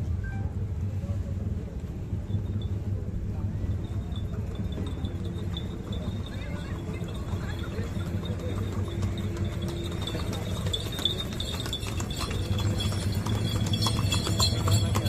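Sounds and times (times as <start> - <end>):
low outdoor rumble: 0.0 - 15.0
horse hooves clip-clopping: 3.6 - 15.0.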